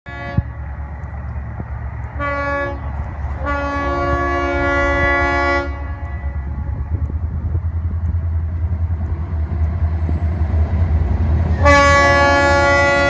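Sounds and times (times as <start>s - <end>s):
locomotive air horn: 0.1s - 0.6s, 2.2s - 7.5s, 11.5s - 13.0s
train rumble: 0.1s - 13.0s.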